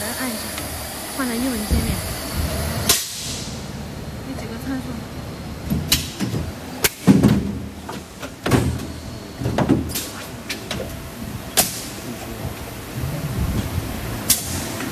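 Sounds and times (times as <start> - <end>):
machine mechanical clunks: 5.5 - 14.9.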